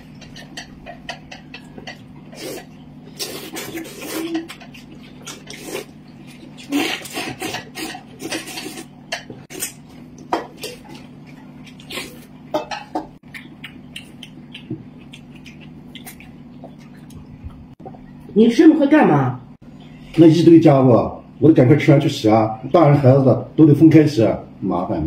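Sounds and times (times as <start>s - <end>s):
chopsticks clicking on bowls: 0.1s - 2.1s
noodles slurped: 2.3s - 8.9s
low hum: 8.2s - 21.8s.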